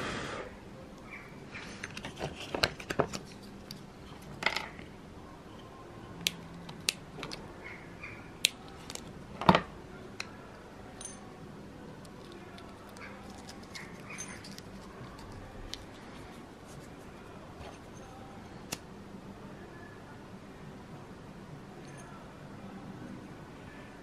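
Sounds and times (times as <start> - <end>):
rustling of tubing and cable: 1.6 - 4.8.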